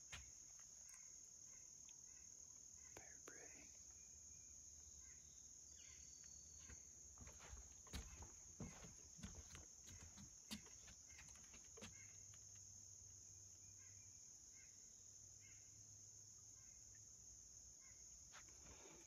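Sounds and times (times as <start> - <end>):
soft footsteps on trail: 0.0 - 0.5, 6.6 - 12.6
faint chirps: 0.0 - 19.0.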